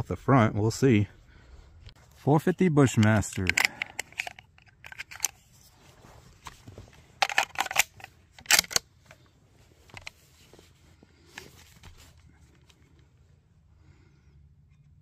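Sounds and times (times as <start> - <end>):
rifle handling clicks and knocks: 1.9 - 5.7, 6.3 - 10.7.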